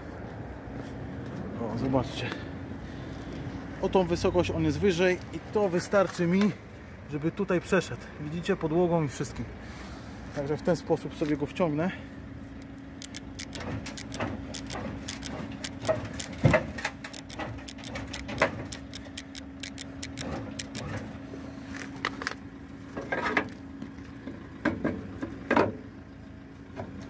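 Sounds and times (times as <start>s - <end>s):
knocks and creaks: 13.0s - 21.1s.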